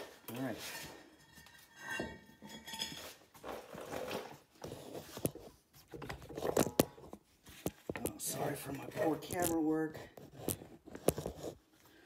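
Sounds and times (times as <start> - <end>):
camera handling rustling and scraping: 3.0 - 11.7.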